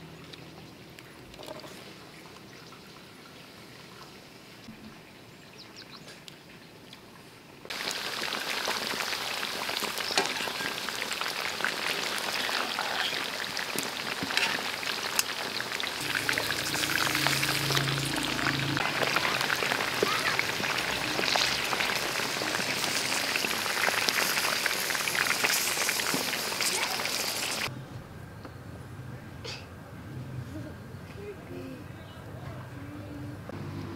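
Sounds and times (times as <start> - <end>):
meat sizzling in hot oil: 7.7 - 27.7
oil popping and spitting: 7.7 - 27.7.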